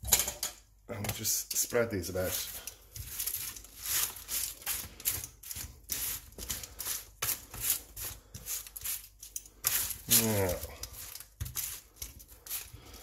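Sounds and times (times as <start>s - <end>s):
tongs scraping on baking tray: 1.5s - 13.0s.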